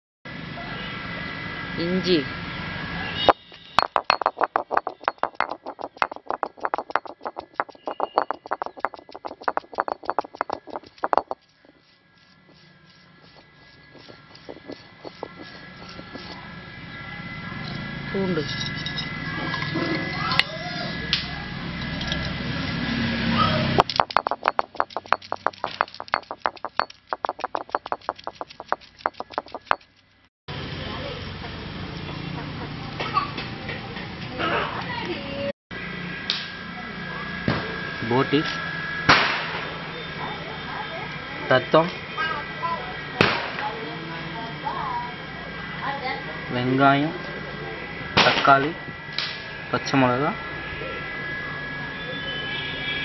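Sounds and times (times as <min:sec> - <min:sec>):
stone roller knocking on slab: 0:03.8 - 0:16.4, 0:23.8 - 0:29.9.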